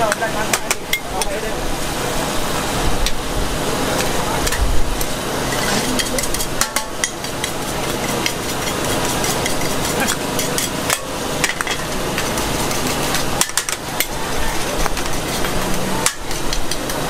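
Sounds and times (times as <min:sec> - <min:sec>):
noodles sizzling: 0:00.0 - 0:17.0
metal ladles clinking on wok: 0:04.0 - 0:17.0.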